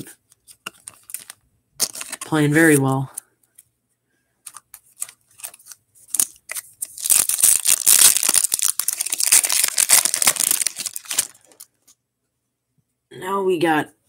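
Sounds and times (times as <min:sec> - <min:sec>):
foil wrapper crackling: 0:00.7 - 0:02.4, 0:04.5 - 0:11.7.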